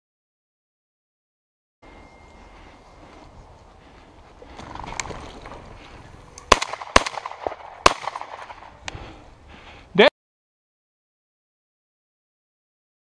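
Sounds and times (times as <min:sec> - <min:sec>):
shotgun shots: 0:06.5 - 0:08.7.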